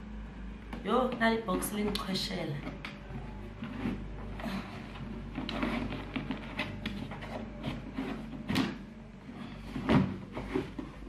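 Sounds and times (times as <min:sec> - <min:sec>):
cardboard box rubbing and scraping: 0:03.4 - 0:11.0.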